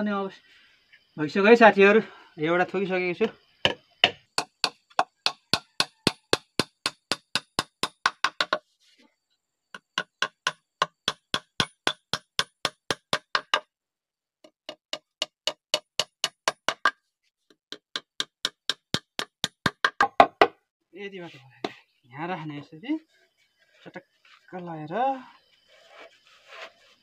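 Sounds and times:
hammer driving nails into wood: 3.7s - 8.6s, 9.8s - 13.6s.

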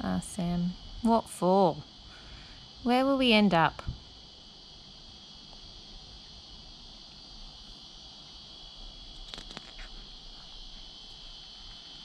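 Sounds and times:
paper page rustling: 9.2s - 10.0s.

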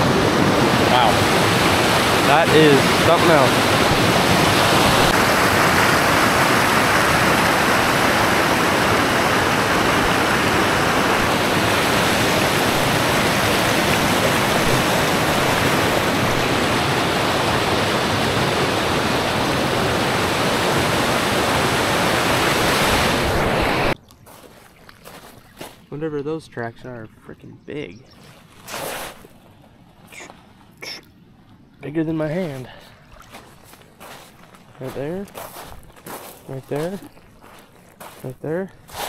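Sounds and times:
waterfall rushing over boulders: 0.0s - 24.0s.

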